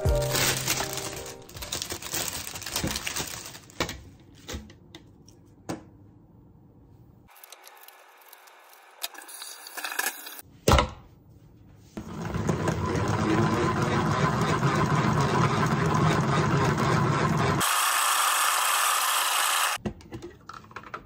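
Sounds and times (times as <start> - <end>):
salad spinner whirring and rattling: 12.0 - 17.7.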